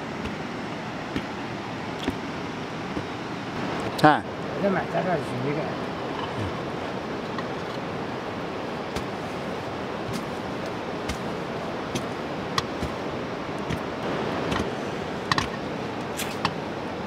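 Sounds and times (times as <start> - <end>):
fire crackling: 5.8 - 16.6.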